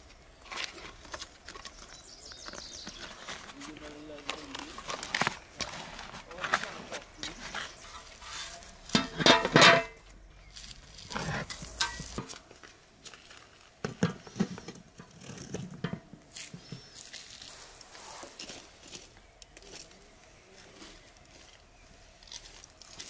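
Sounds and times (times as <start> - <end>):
metal cooking pot clanking: 8.9 - 10.0, 11.4 - 12.3.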